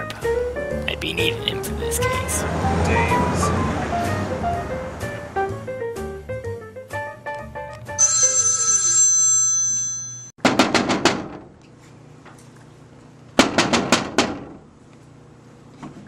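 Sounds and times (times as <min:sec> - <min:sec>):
telephone bell ringing: 0:08.0 - 0:10.3.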